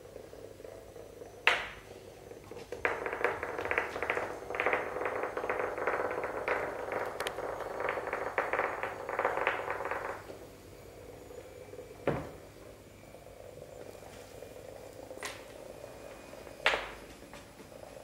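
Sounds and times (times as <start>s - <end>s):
vibrating toy bug rattling on floor: 0.0s - 10.5s.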